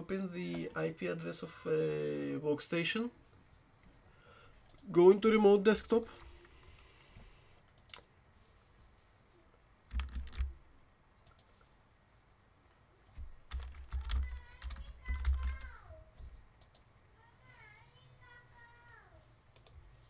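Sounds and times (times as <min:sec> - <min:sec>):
typing on computer keyboard: 0:09.9 - 0:10.6, 0:13.5 - 0:15.7.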